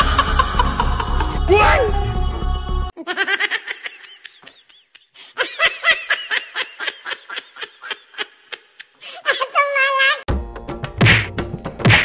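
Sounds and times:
high-pitched giggling laughter: 0:03.0 - 0:10.2.

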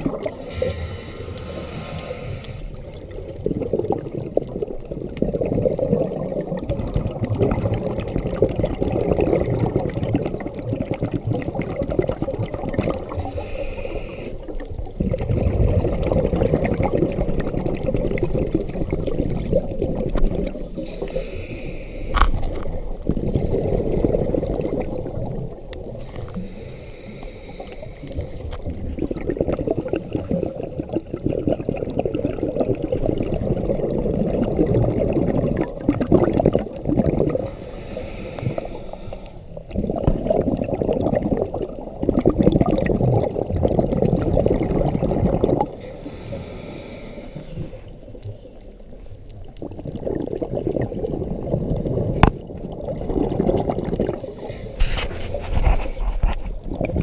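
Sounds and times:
exhaled bubbles underwater: 0:00.0 - 0:57.0
hissing regulator inhalations: 0:00.3 - 0:02.9, 0:13.1 - 0:14.6, 0:20.7 - 0:22.4, 0:26.0 - 0:28.6, 0:37.4 - 0:39.6, 0:45.7 - 0:48.8, 0:54.2 - 0:56.3.

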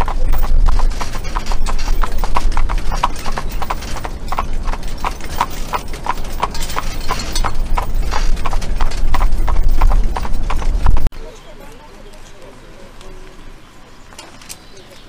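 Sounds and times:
carriage rolling rumble: 0:00.0 - 0:11.1
horse hooves clip-clopping on pavement: 0:00.0 - 0:11.1.

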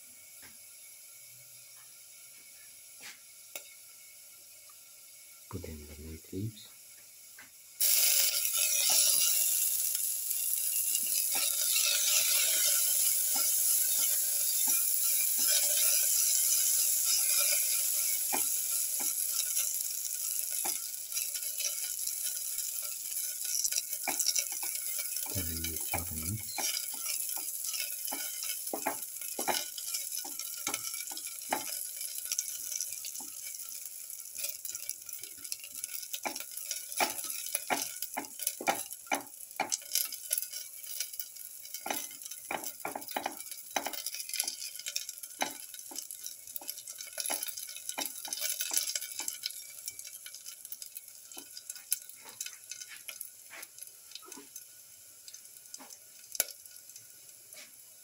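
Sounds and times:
food sizzling in hot oil: 0:00.0 - 0:58.0
spatula scraping and tapping pan: 0:03.0 - 0:03.8, 0:07.4 - 0:10.0, 0:10.6 - 0:54.7, 0:55.3 - 0:57.8.

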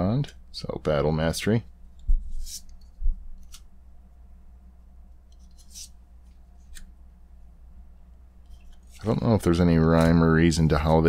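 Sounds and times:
cards swishing: 0:02.0 - 0:03.7, 0:05.3 - 0:06.9.

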